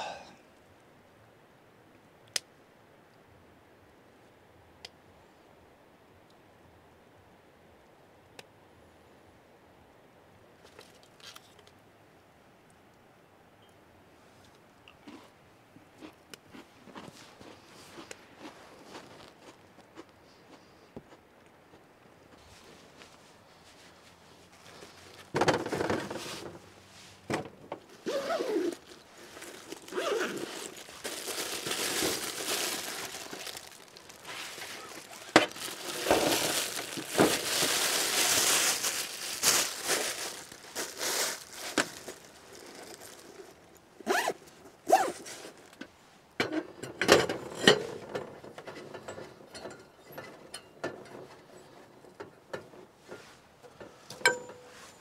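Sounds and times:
camp gear knocking and clinking: 25.3s - 26.6s, 27.3s - 43.2s, 46.4s - 52.8s, 53.8s - 55.0s
plastic bag crinkling: 27.9s - 44.4s.

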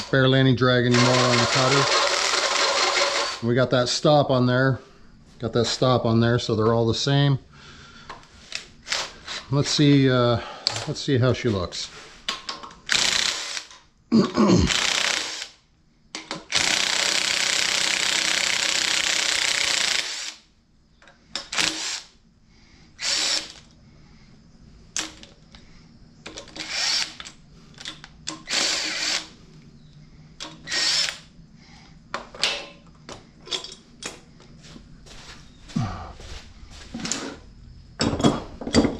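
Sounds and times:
cordless drill running: 0.9s - 3.4s, 12.9s - 13.7s, 14.7s - 15.6s, 16.5s - 20.4s, 23.0s - 23.6s, 26.6s - 27.2s, 28.4s - 29.3s, 30.6s - 31.2s
tools knocking and rattling: 32.2s - 34.2s, 38.0s - 38.9s.

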